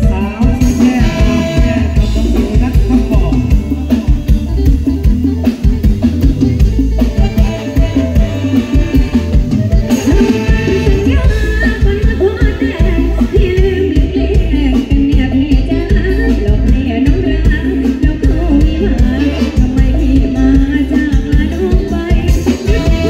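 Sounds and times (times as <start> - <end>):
drum kit beat: 0.0 - 23.0
keyboard: 0.0 - 23.0
woman singing into microphone: 9.9 - 23.0.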